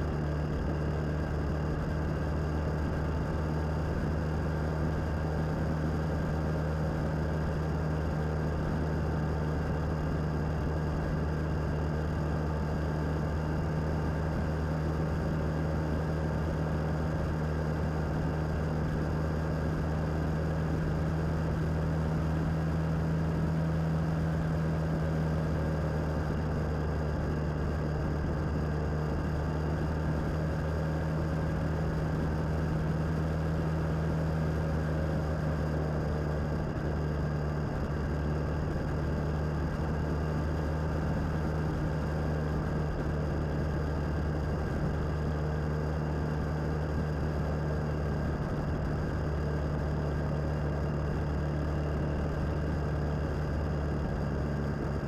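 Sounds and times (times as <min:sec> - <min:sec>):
wind and road noise: 0:00.0 - 0:55.0.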